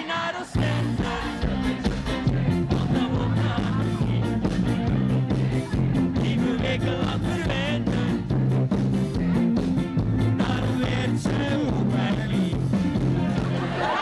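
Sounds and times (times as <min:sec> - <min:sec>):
man singing into a microphone: 0:00.0 - 0:08.4, 0:10.3 - 0:13.0
keyboard: 0:00.0 - 0:14.0
drums keeping a steady beat: 0:00.5 - 0:14.0
electric bass and guitars: 0:00.5 - 0:14.0.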